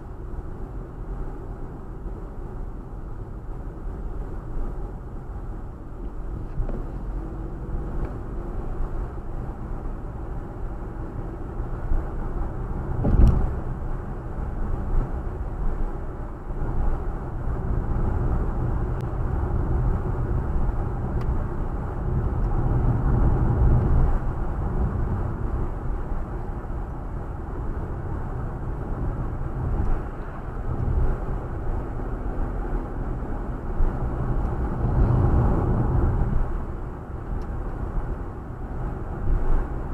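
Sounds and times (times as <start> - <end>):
car cabin road rumble: 0.0 - 39.9.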